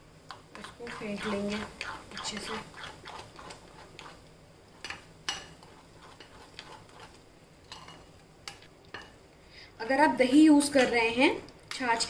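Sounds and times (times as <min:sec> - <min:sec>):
spoon stirring thick batter: 0:00.3 - 0:09.1.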